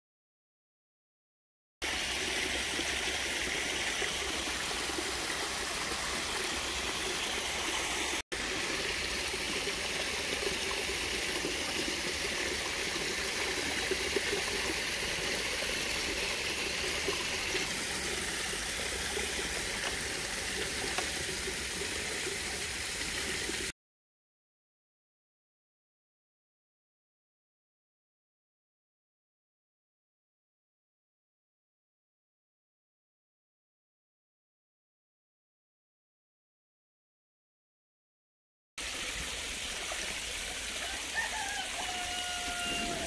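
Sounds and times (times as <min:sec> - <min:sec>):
water rushing from pump: 0:01.8 - 0:23.7, 0:38.8 - 0:43.0.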